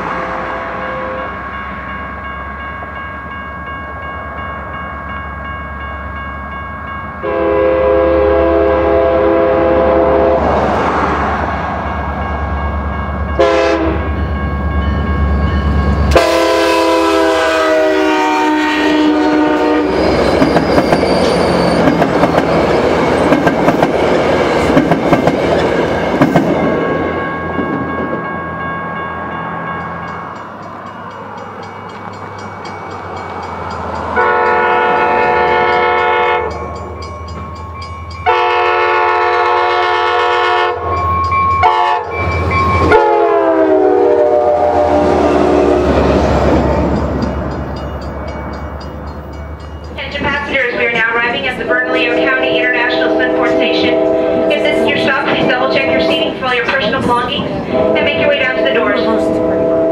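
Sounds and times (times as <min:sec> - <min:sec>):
train coaches rumbling: 0:00.0 - 0:59.9
locomotive air horn blasts: 0:00.3 - 0:01.4, 0:07.2 - 0:10.6, 0:13.4 - 0:14.1, 0:16.1 - 0:20.1, 0:34.2 - 0:36.6, 0:38.2 - 0:41.0, 0:41.6 - 0:42.2, 0:42.8 - 0:46.0, 0:51.7 - 0:56.4, 0:57.5 - 0:59.9.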